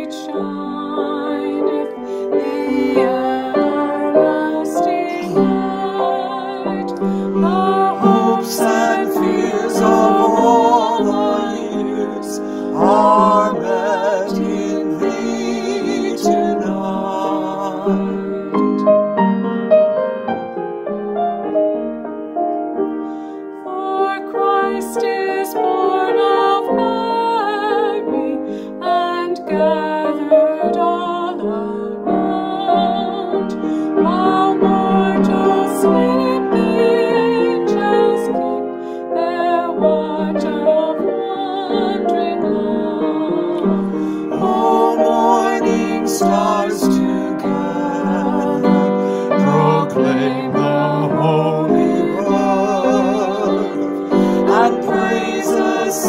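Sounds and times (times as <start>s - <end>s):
woman singing: 0.0s - 18.8s, 23.6s - 56.0s
piano accompaniment: 0.0s - 56.0s
man singing: 7.4s - 18.8s, 44.1s - 56.0s.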